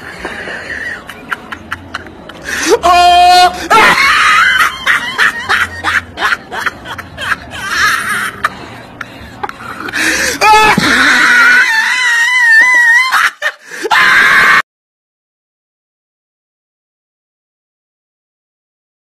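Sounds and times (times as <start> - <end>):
people laughing: 0.0 - 14.5
person wailing: 2.6 - 5.0, 10.2 - 13.3.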